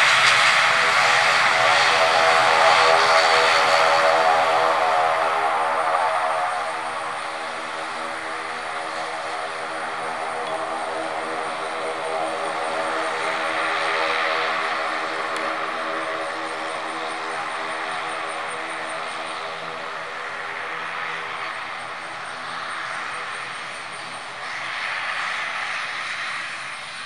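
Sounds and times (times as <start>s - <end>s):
turboprop engines droning: 0.0s - 27.0s.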